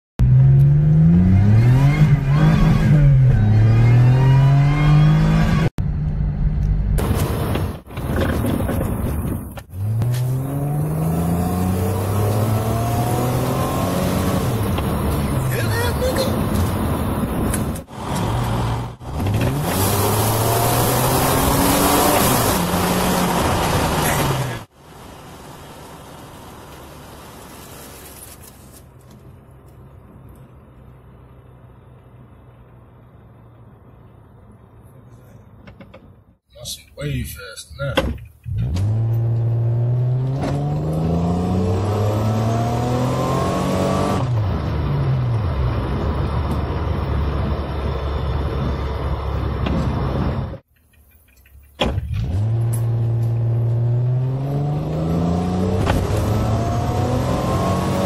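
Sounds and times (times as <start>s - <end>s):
car engine accelerating hard: 0.2s - 7.5s, 9.7s - 17.2s, 17.9s - 24.7s, 38.5s - 50.6s, 52.1s - 58.0s
road noise: 0.2s - 58.0s.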